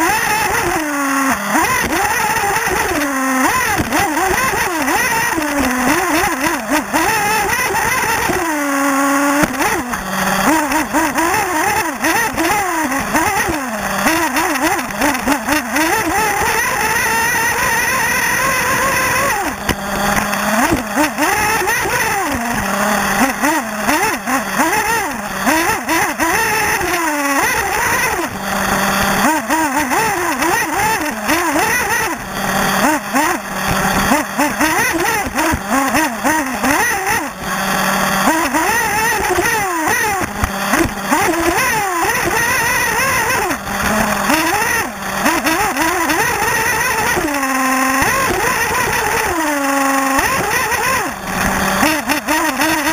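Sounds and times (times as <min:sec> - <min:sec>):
rc car nitro engine revving: 0:00.0 - 0:52.9.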